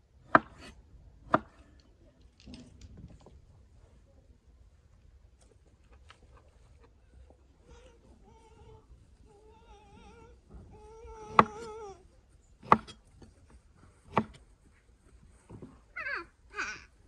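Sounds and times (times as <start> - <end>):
cleaver chopping on wooden board: 0.3 - 0.7, 1.3 - 1.5, 11.3 - 11.7, 12.6 - 13.0, 14.1 - 14.4.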